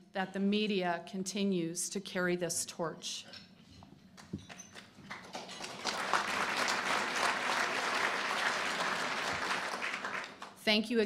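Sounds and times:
audience applauding: 5.0s - 10.6s.

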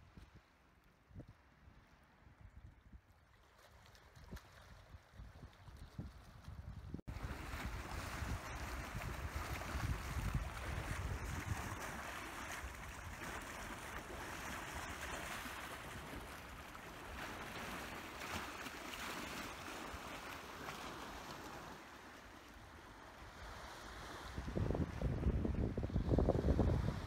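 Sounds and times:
wind buffeting microphone: 4.3s - 13.8s, 24.0s - 27.0s
waves splashing against rocks: 7.1s - 22.6s.

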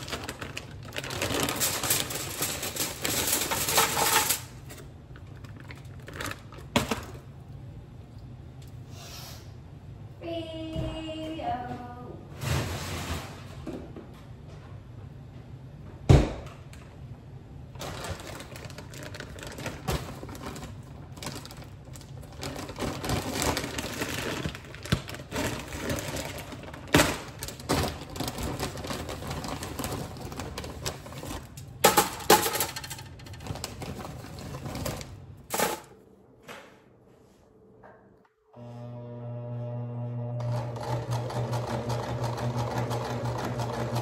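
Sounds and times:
hard objects clicking and clattering: 22.3s - 35.9s.

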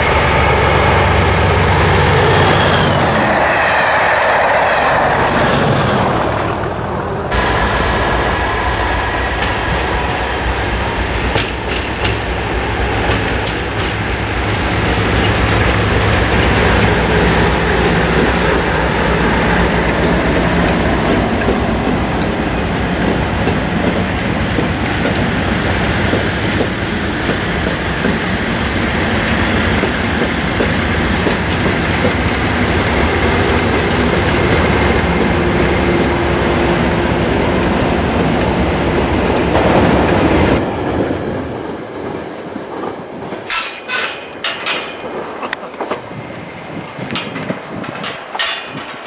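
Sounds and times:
diesel locomotive engine hum: 0.0s - 49.0s
wheel-on-rail noise: 0.0s - 49.0s.

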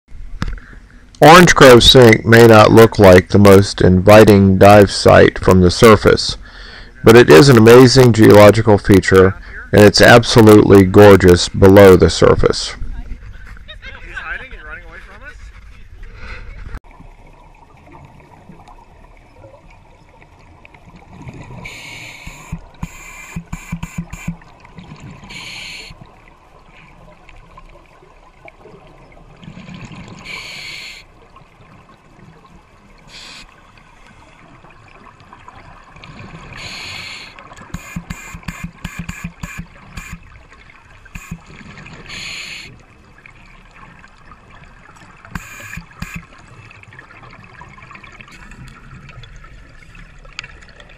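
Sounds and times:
diver inhaling through regulator: 6.4s - 7.0s, 25.2s - 26.0s, 30.2s - 31.1s, 33.1s - 33.5s, 36.6s - 38.0s, 42.1s - 42.8s
exhaust bubbles gurgling: 16.9s - 33.8s.

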